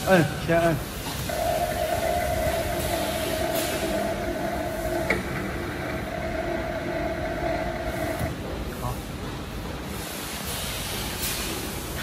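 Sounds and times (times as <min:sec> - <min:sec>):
welding machine humming: 0:01.3 - 0:08.4.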